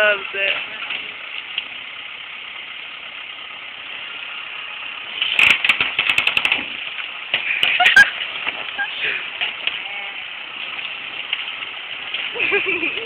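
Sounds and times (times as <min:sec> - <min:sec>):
tractor engine running: 0:00.0 - 0:13.0
wood cracking and snapping: 0:04.9 - 0:13.0.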